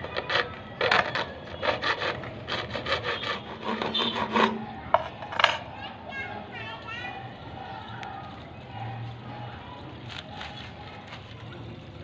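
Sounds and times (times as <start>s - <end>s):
hacksaw sawing plastic pipe: 0.0s - 5.2s.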